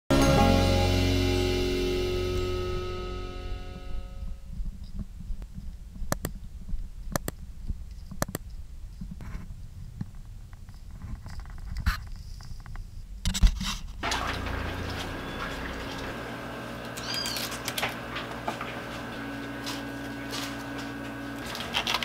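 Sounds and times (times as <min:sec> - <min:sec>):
steady background hum: 0:01.7 - 0:22.0
chirp-like squeak: 0:17.0 - 0:17.5.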